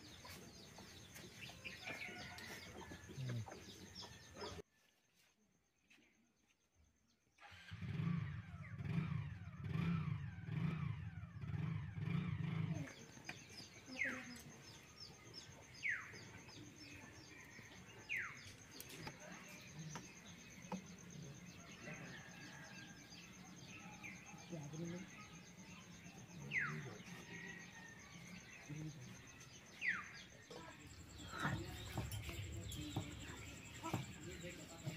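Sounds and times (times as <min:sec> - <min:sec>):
low pulsing engine hum: 0:30.5 - 0:34.9.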